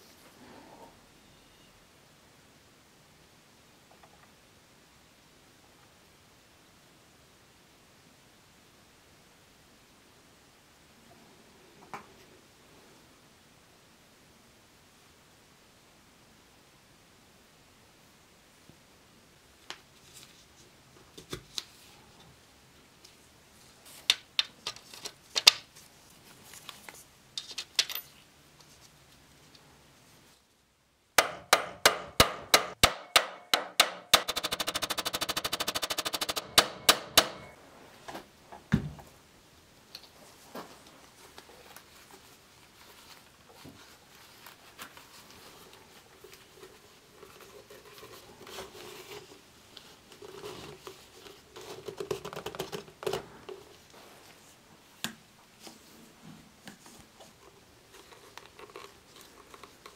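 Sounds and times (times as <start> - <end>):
fast steady rattle: 34.1 - 37.4
small metal parts clicking: 34.1 - 37.5.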